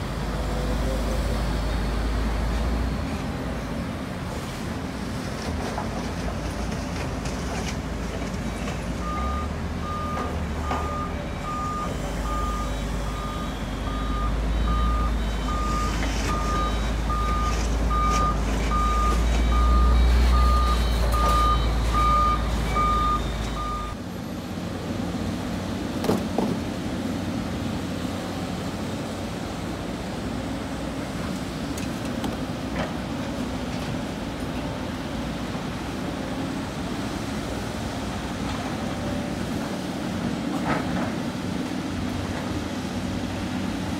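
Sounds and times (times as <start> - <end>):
heavy diesel machinery rumbling: 0.0 - 43.9
backup alarm beeping: 9.0 - 24.0.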